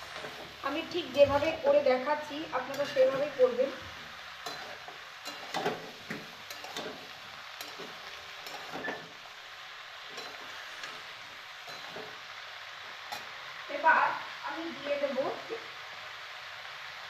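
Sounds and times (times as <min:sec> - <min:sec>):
vegetables sizzling in a pan: 0:00.0 - 0:17.0
spatula clicking and scraping pan: 0:02.6 - 0:03.6, 0:04.4 - 0:09.2, 0:10.0 - 0:12.2, 0:13.1 - 0:13.4.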